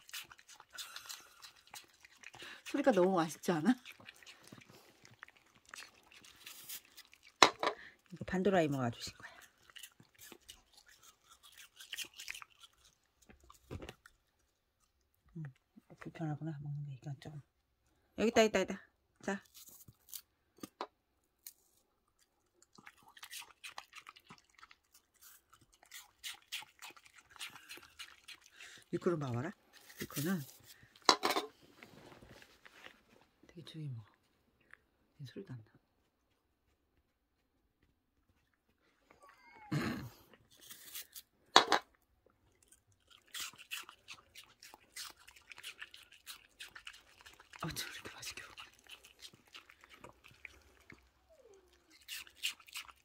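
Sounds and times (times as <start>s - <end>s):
dog crunching apple: 0.0s - 15.0s, 19.4s - 20.8s, 21.4s - 31.4s, 40.1s - 53.0s.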